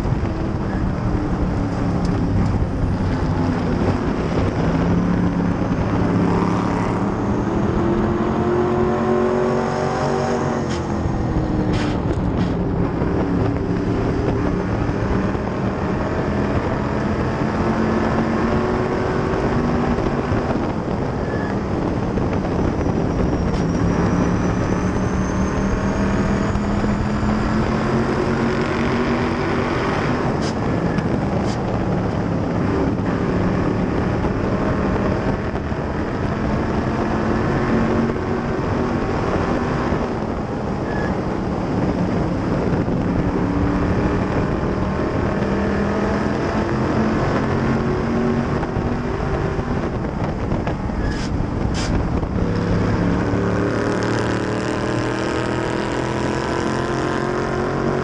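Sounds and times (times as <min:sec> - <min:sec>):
race car engine revving: 0:00.0 - 0:58.0
wind rushing over microphone: 0:00.0 - 0:58.0.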